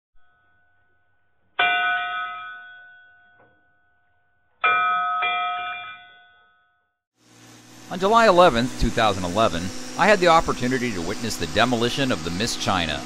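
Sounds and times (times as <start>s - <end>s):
bell-like chime: 0.2s - 7.0s.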